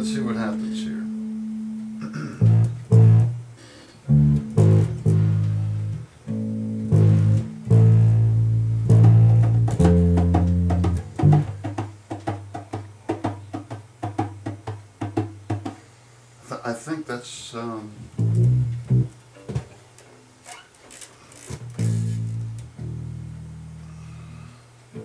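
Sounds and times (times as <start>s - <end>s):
bass guitar notes: 0.0s - 12.9s, 17.9s - 19.6s, 21.6s - 25.0s.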